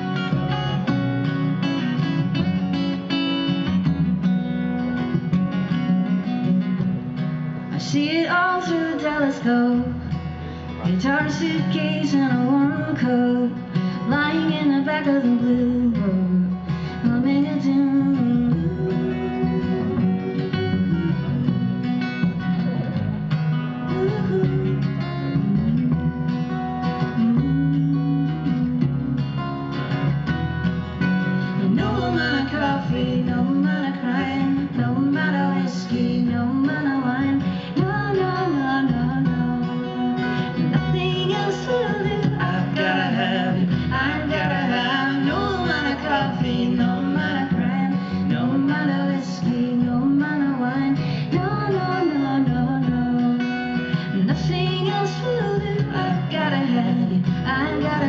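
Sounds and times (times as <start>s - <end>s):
strummed acoustic guitars: 0.0s - 58.0s
upright double bass: 0.0s - 58.0s
person singing: 10.7s - 21.8s, 31.5s - 58.0s.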